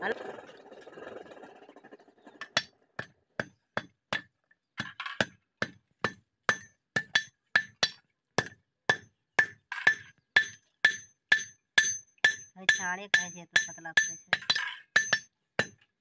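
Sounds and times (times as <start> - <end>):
hammer striking metal on anvil: 6.0 - 15.8.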